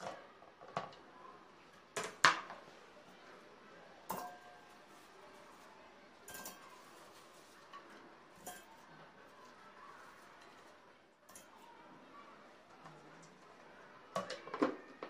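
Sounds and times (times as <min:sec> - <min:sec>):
frozen fruit clinking in metal bowl: 0:04.1 - 0:11.6.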